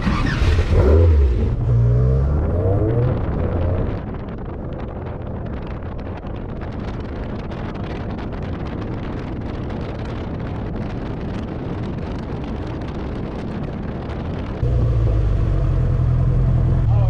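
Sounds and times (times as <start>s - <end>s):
car road noise: 0.0s - 5.8s, 14.2s - 17.0s
wind buffeting microphone: 0.0s - 17.0s
steady low hum: 14.6s - 17.0s.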